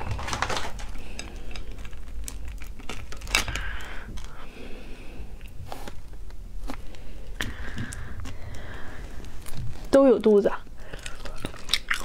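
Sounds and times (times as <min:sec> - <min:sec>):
shellfish shells cracking: 0:00.0 - 0:04.4, 0:10.8 - 0:12.0.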